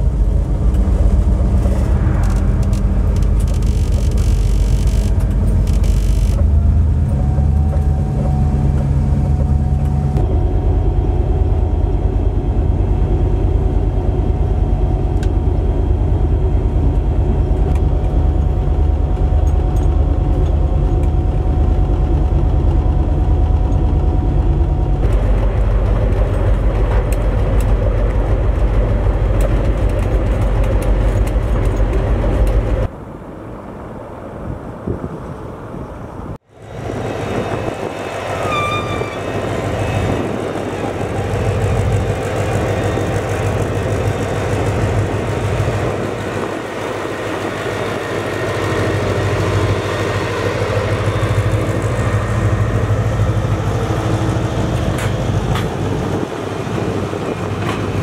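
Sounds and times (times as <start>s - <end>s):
locomotive diesel engine under load: 0.0s - 32.9s, 36.0s - 58.0s
steady whine: 0.0s - 33.0s, 36.3s - 58.0s
wheel and rail rumble: 0.0s - 58.0s
passing train rushing hiss: 36.6s - 58.0s.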